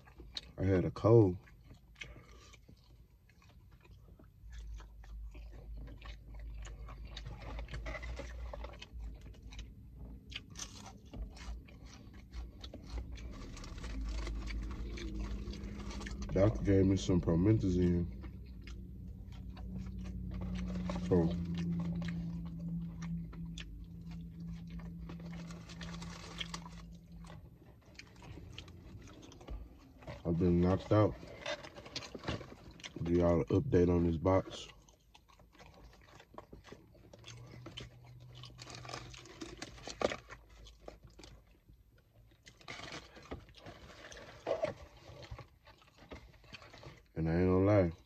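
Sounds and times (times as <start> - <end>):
mouth clicks and chewing: 0.0 - 47.2
steady low hum: 1.4 - 34.5.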